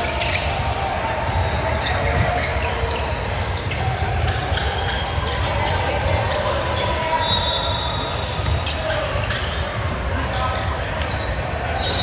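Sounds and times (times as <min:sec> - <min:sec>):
hubbub of the hall: 0:00.0 - 0:12.0
basketball bouncing on floor: 0:08.4 - 0:08.7.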